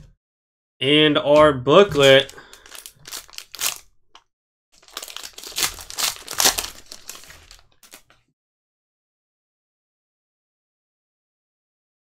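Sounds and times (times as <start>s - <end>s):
foil wrapper crinkling and tearing: 1.9s - 4.0s, 4.8s - 8.2s.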